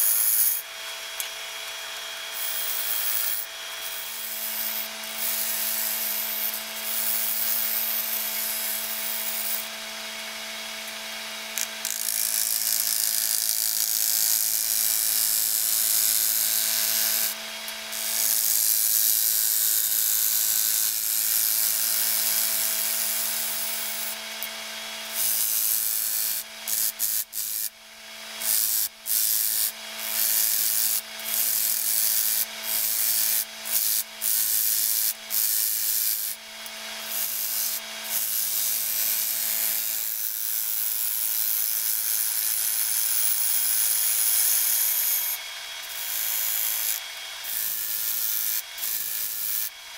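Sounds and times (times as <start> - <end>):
gouge cutting spinning wood: 0.0 - 24.4
wood lathe motor hum: 0.2 - 18.5.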